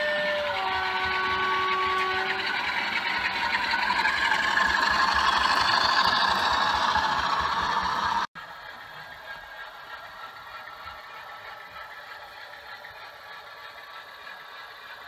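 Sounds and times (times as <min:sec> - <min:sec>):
model locomotive horn: 0:00.0 - 0:03.8
model locomotive engine: 0:00.0 - 0:15.0.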